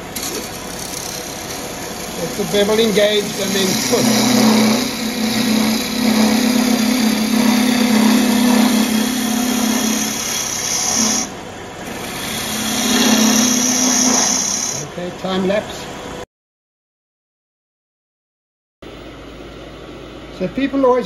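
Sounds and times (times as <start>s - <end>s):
lathe low hum: 0.0s - 16.2s
gouge hissing cut on wood: 0.5s - 14.9s.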